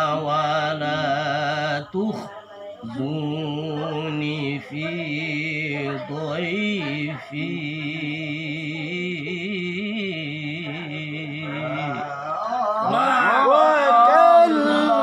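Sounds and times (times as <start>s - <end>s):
man chanting recitation: 0.0s - 15.0s.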